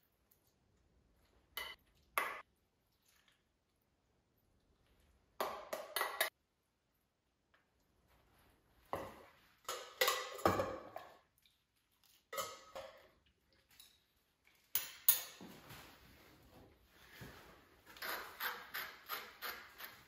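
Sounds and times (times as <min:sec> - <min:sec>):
spoon scraping metal bowls: 0:18.0 - 0:20.0.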